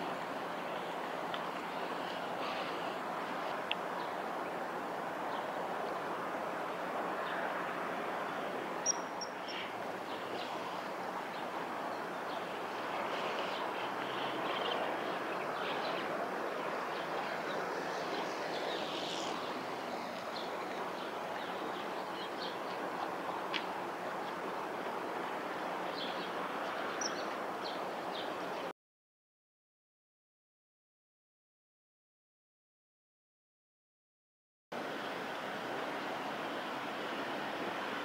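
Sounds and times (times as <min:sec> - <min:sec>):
outdoor background noise: 0:00.0 - 0:28.7, 0:34.7 - 0:38.0
faint high bird chirps: 0:08.8 - 0:09.6.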